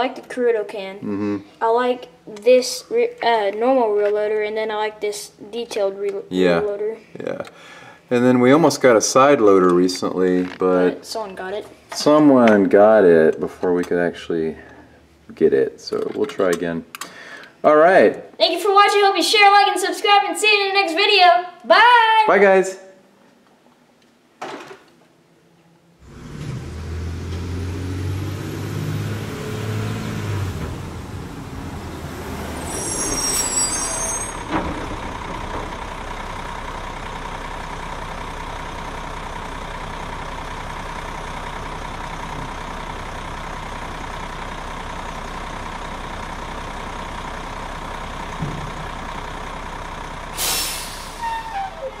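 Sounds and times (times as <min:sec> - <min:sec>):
garbage truck engine and machinery hum: 0:25.9 - 0:52.0
sharp hiss of air: 0:50.4 - 0:51.5.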